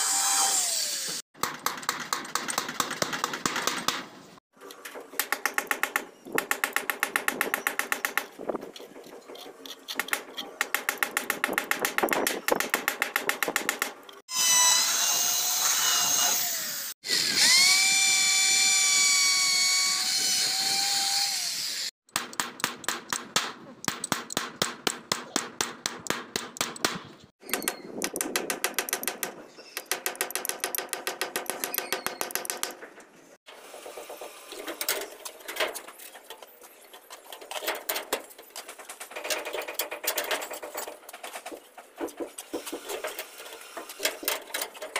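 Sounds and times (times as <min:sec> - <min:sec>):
power drill running: 0:00.0 - 0:01.2.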